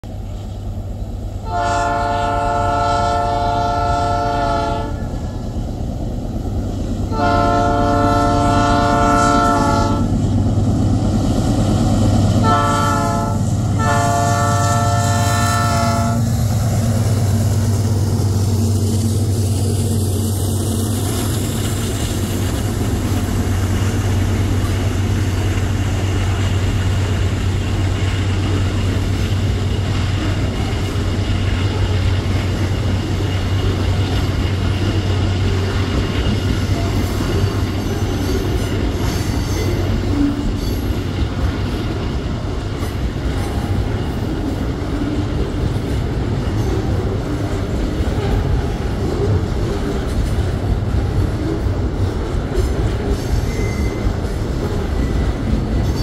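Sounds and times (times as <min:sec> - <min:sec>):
locomotive engine: 0:00.0 - 0:56.0
locomotive horn blasts: 0:01.4 - 0:05.1, 0:07.1 - 0:10.1, 0:12.4 - 0:16.4
wagons rolling on rails: 0:16.4 - 0:56.0.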